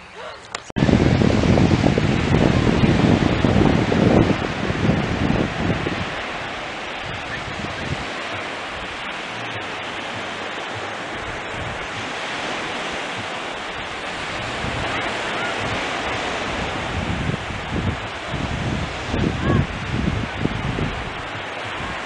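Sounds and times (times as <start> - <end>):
small waves breaking on beach: 0.2 - 22.0
wind rumble on microphone: 0.7 - 22.0.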